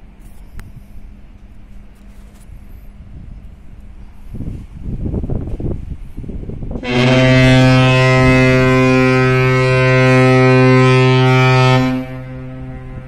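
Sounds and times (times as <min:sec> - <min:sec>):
ship's horn blast: 0:06.8 - 0:13.0.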